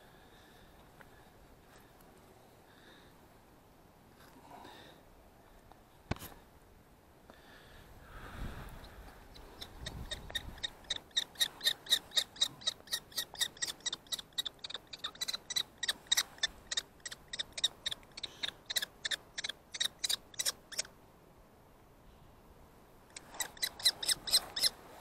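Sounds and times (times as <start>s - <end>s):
kestrel shrill calls: 9.3s - 20.9s, 23.1s - 24.8s.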